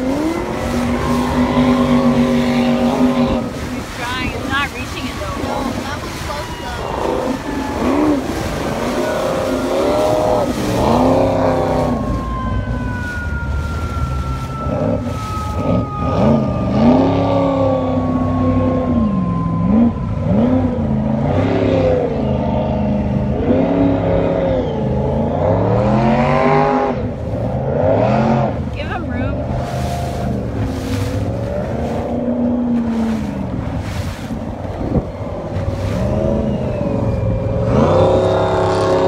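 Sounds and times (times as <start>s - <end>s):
jet boat engine revving: 0.0s - 39.0s
rush of wind and water: 0.0s - 39.0s.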